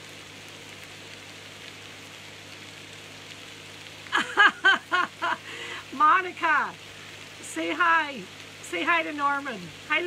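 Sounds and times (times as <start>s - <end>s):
potatoes sizzling in a frying pan: 0.0s - 10.0s
woman speaking: 4.2s - 6.8s, 7.4s - 10.0s.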